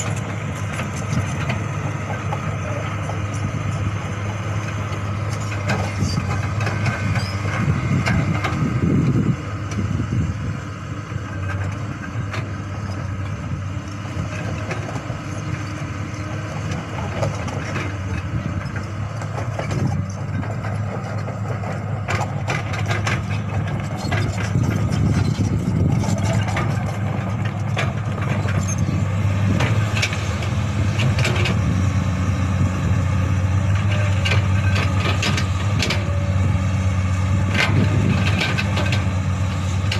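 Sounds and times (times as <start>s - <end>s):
excavator diesel engine humming: 0.0s - 39.9s.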